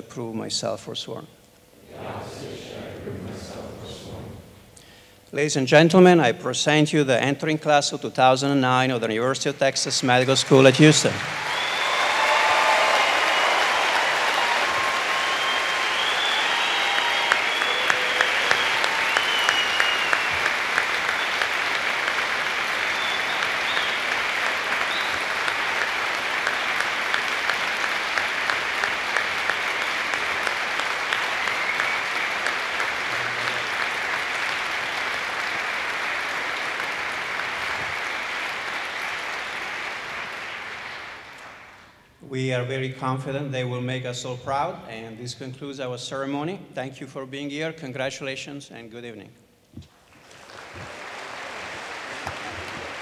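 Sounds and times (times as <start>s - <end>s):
large audience applauding: 10.0s - 42.0s, 50.0s - 53.0s
people whooping: 11.2s - 34.6s.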